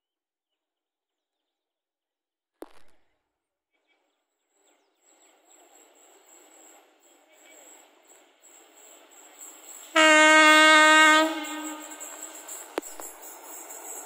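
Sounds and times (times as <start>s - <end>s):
train approaching with high whine: 4.5s - 14.0s.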